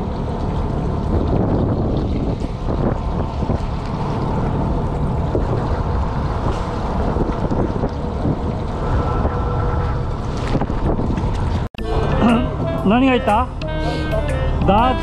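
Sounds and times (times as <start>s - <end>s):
wind buffeting microphone: 0.0s - 11.8s
boat engine rumble: 0.0s - 15.0s.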